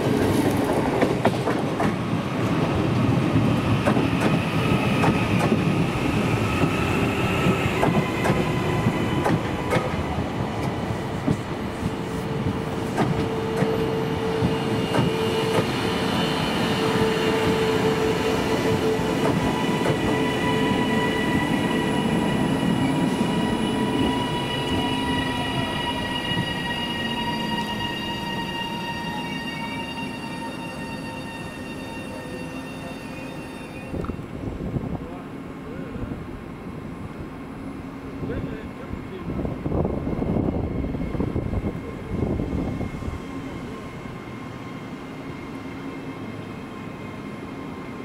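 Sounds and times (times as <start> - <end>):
train rumble: 0.0 - 28.6.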